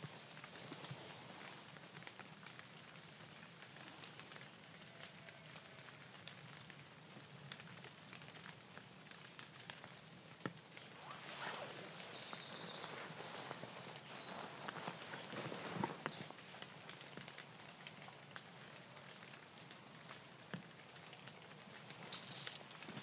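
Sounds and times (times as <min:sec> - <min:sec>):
rain pattering on trees: 0:00.0 - 0:23.0
bird singing trills: 0:10.5 - 0:16.2.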